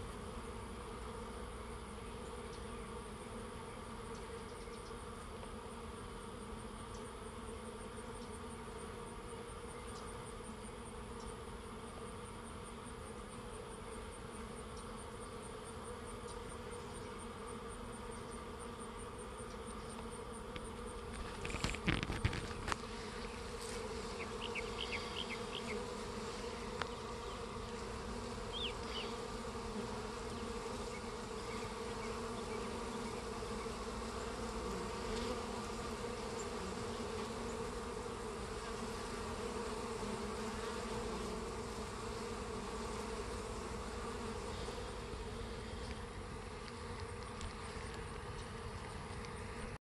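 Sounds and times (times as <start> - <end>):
bees buzzing: 0.0 - 49.8.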